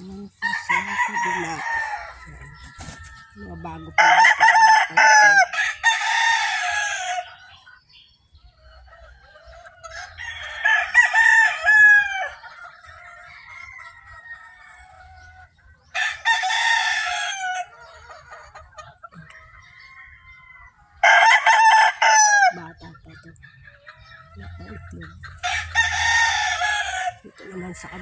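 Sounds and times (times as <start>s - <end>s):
chicken calls: 0.0s - 28.0s
rooster crowing: 0.4s - 7.4s, 10.0s - 12.4s, 16.0s - 17.7s, 19.6s - 22.6s, 25.4s - 27.2s.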